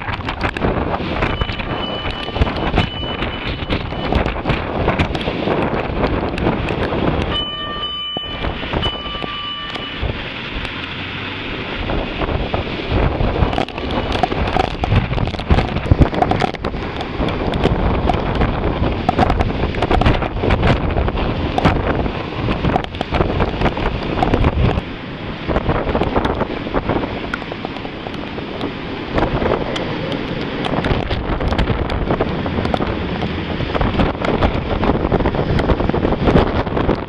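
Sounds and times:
rain: 0.0s - 37.0s
wind gusting over microphone: 0.0s - 37.0s
short steady tones: 1.3s - 4.3s, 7.3s - 10.1s.

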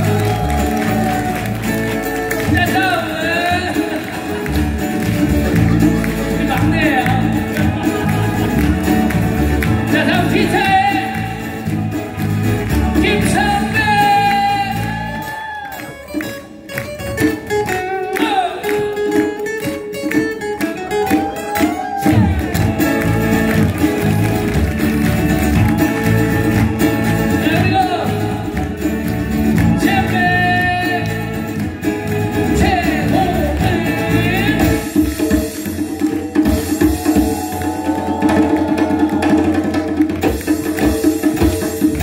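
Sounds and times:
person singing: 0.0s - 5.1s, 5.9s - 11.9s, 12.7s - 16.0s, 26.8s - 35.6s
acoustic band playing: 0.0s - 42.0s.

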